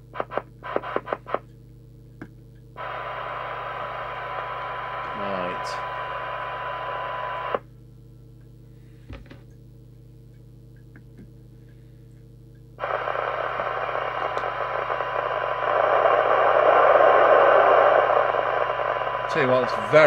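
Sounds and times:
low hum: 0:00.1 - 0:20.0
radio hiss: 0:00.2 - 0:01.4, 0:02.8 - 0:07.6, 0:12.8 - 0:20.0
radio test tone: 0:02.8 - 0:07.6, 0:12.8 - 0:20.0.

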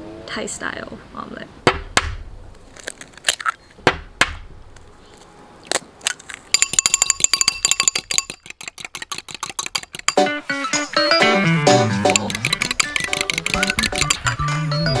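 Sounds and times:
fork beating eggs in bowl: 0:06.5 - 0:10.2, 0:11.9 - 0:14.3
eggs cracked on ceramic bowl: 0:12.1 - 0:14.3.

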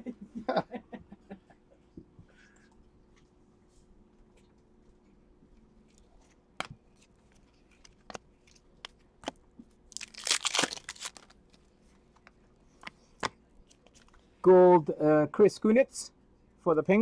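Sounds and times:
foil wrapper tearing and crinkling: 0:09.9 - 0:11.6.

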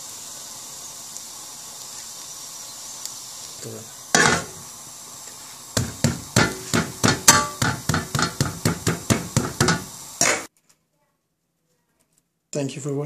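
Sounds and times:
sizzling on griddle: 0:00.0 - 0:10.5
metal spatula striking griddle: 0:04.2 - 0:04.6, 0:05.8 - 0:10.5.

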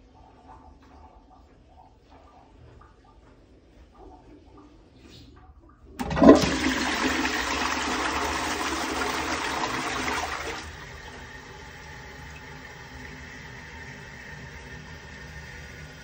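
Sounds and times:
toilet flushing: 0:05.9 - 0:16.0.

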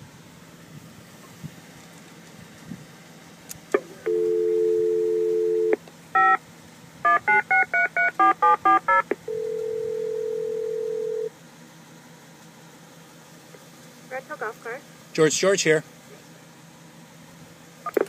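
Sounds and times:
dial tone: 0:04.0 - 0:06.4, 0:07.1 - 0:11.3
touch-tone digits dialing: 0:07.1 - 0:11.3.

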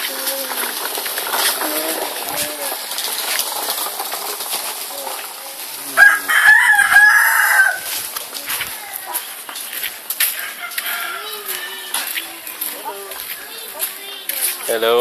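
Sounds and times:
rooster crowing: 0:06.0 - 0:07.9, 0:10.3 - 0:12.2.

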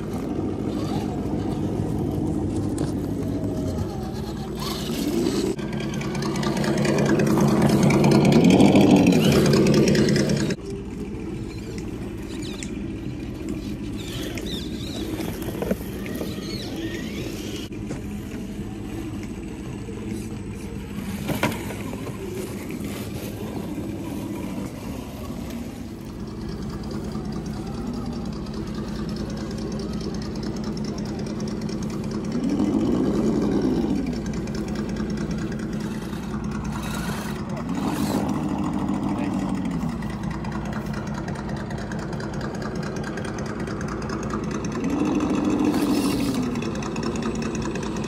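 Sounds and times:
electric motors whining: 0:00.0 - 0:48.0.

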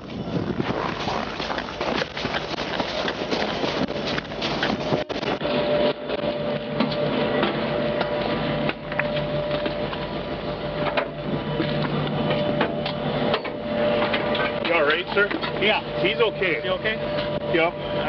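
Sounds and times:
rustling: 0:00.4 - 0:05.4.

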